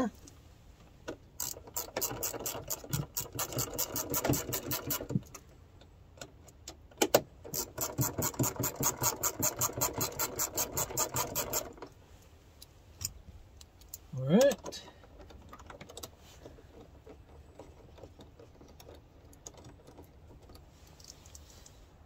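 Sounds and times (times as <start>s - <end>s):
hand ratchet clicking: 1.4s - 5.4s, 7.0s - 11.8s.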